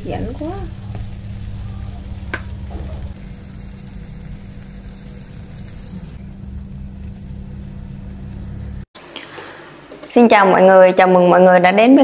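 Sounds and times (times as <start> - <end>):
gas stove burner rumble: 0.0 - 8.9.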